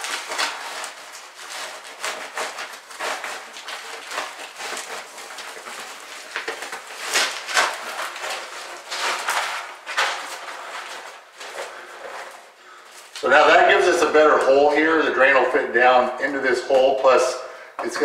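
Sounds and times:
cloth scraping on concrete: 0.0s - 18.0s.

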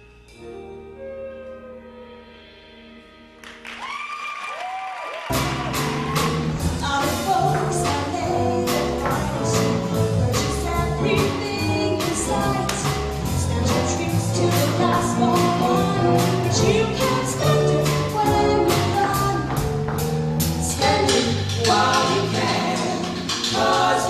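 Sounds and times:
group of voices singing: 10.8s - 19.5s, 20.4s - 24.0s.

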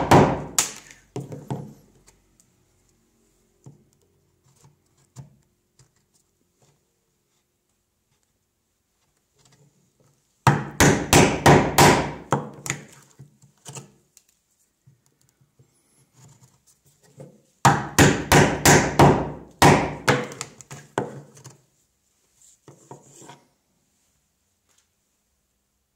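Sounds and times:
mallet striking chisel into wood: 0.0s - 0.7s, 10.5s - 12.8s, 17.7s - 21.2s.

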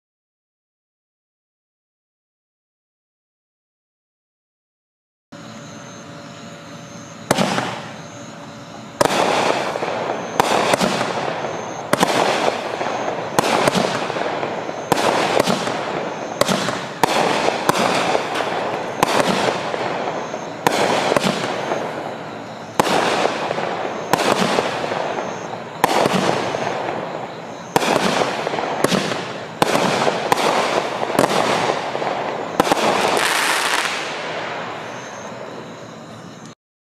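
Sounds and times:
firework shots: 7.2s - 36.1s
crackling firework bursts: 7.3s - 8.3s, 8.9s - 36.5s.

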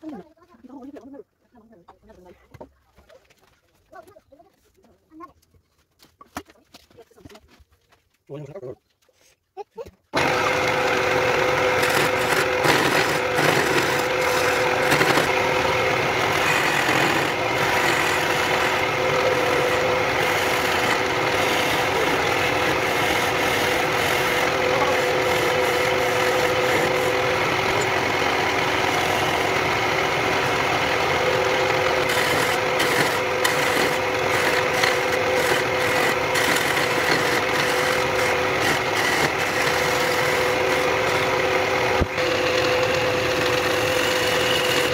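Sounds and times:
wood lathe motor humming: 10.2s - 44.9s
chisel scraping wood: 10.4s - 41.5s, 42.2s - 44.9s.

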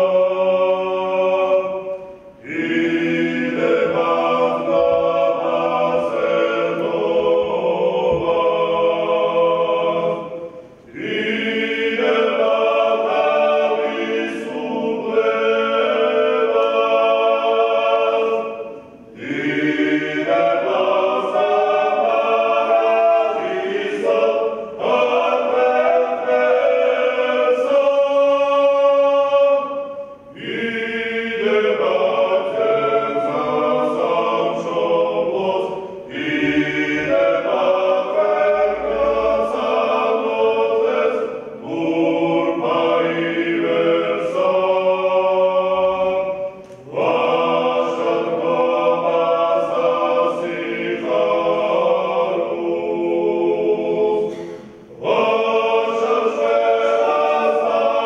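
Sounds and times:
group singing a cappella: 0.0s - 58.0s.

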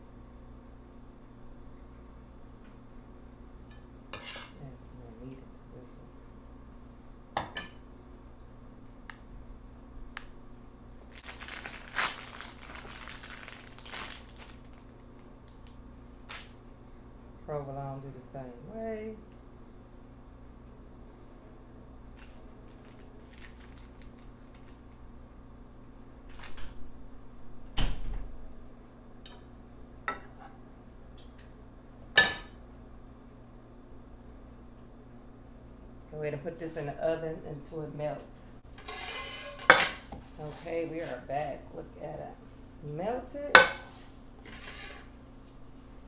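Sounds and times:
plastic wrapping crinkling: 11.1s - 16.5s, 22.2s - 24.8s.

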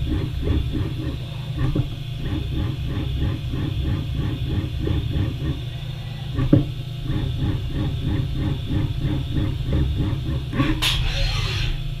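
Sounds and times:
low machine hum: 0.0s - 12.0s
milling machine spindle stroking: 0.0s - 12.0s.

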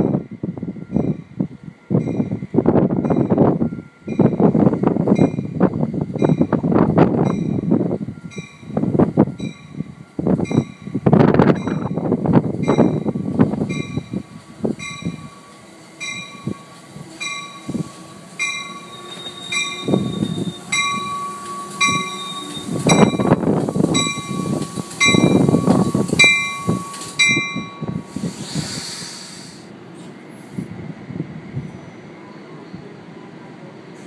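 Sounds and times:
train bell ringing: 0.0s - 28.1s
train wheels rumbling and clattering: 0.0s - 31.9s
air hiss: 27.9s - 30.8s.

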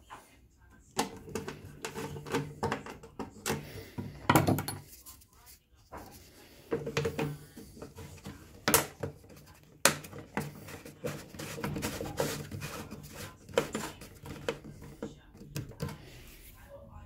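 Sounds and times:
handling scrapes: 9.2s - 15.0s.

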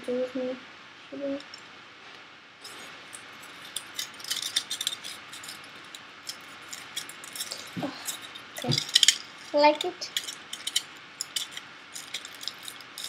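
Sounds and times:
aluminium foil crinkling: 2.6s - 13.0s.

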